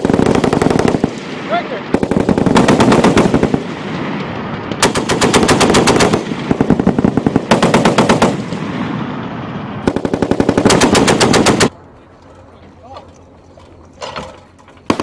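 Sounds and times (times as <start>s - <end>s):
heavy machine gun bursts: 9.9s - 11.7s.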